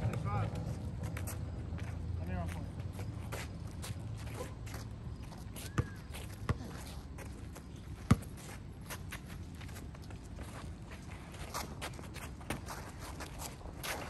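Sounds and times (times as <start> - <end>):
shoes scuffing on court: 0.0 - 14.0
basketball bouncing: 8.1 - 8.3.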